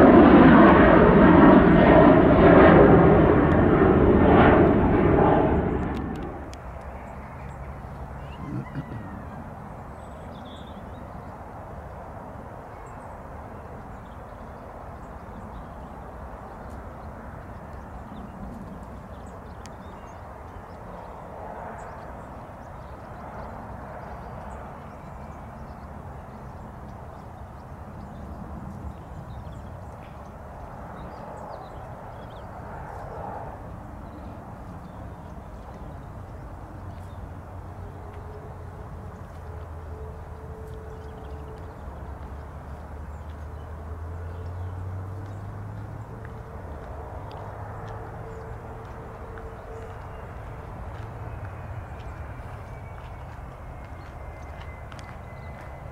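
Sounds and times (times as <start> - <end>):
faint engine tone: 0.0 - 10.8
distant jet engines rushing: 0.0 - 55.9.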